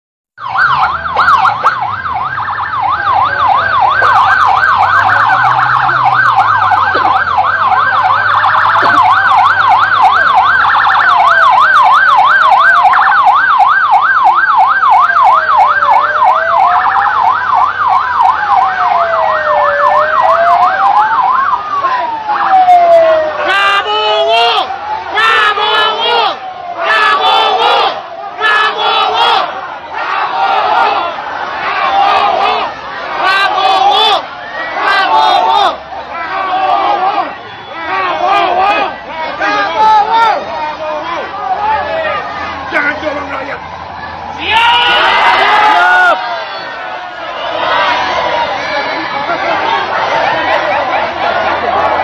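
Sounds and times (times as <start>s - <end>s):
different siren pattern: 0.4s - 52.0s
siren wailing: 0.4s - 52.0s
siren yelping: 0.4s - 52.0s.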